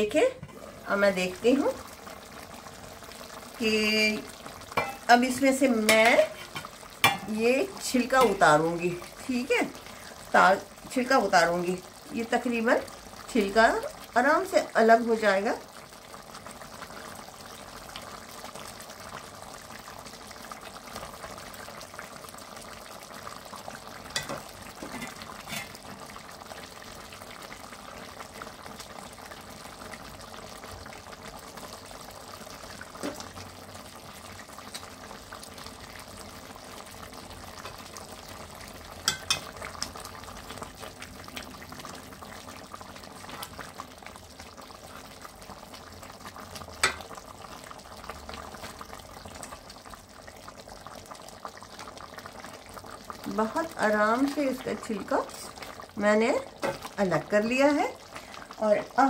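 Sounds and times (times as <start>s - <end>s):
pot simmering and bubbling: 0.0s - 59.0s
metal tongs clinking against pot: 39.1s - 39.5s.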